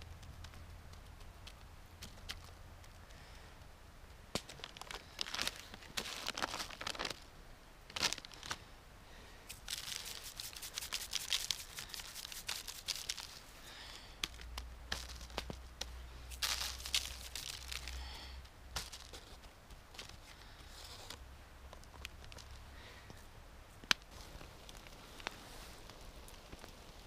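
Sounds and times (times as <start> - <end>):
paper wrapping crinkling: 4.4 - 7.3, 7.9 - 8.6, 9.5 - 15.7, 16.3 - 18.2, 18.8 - 22.6
seasoning shaker shaken: 9.5 - 13.4.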